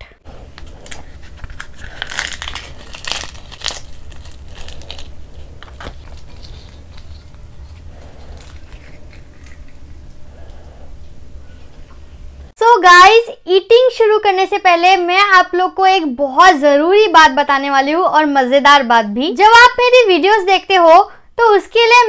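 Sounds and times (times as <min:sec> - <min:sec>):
steady low hum: 0:00.0 - 0:12.6
handling of food: 0:00.3 - 0:10.3
fried bread crackling and crunching: 0:00.6 - 0:10.2.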